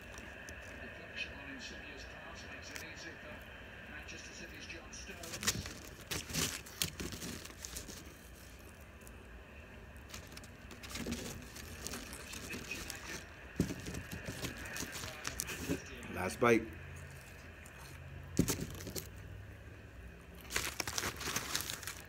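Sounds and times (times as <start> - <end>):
paper wrapper crinkling: 0.0 - 0.8, 5.1 - 9.2, 9.9 - 16.4, 17.0 - 19.2, 20.3 - 22.0.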